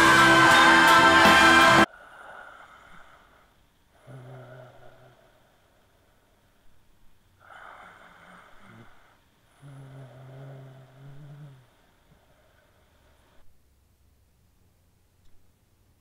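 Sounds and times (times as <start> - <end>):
man snoring: 4.0 - 5.4, 7.4 - 11.8.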